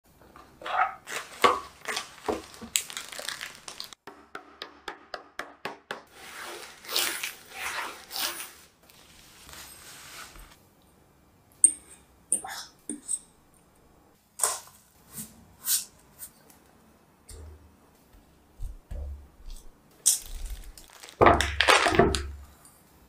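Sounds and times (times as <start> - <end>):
plastic bag crinkling: 1.0 - 4.0, 20.0 - 22.4
biscuits crunching and snapping: 1.1 - 4.0, 20.0 - 22.0.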